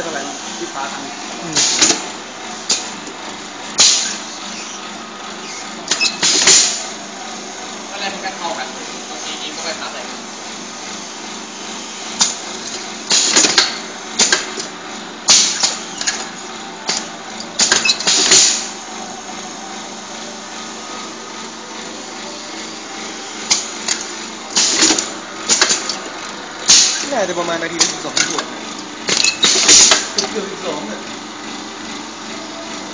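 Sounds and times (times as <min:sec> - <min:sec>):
steady machine hum: 0:00.0 - 0:32.9
pneumatic hisses and clunks: 0:03.8 - 0:04.8.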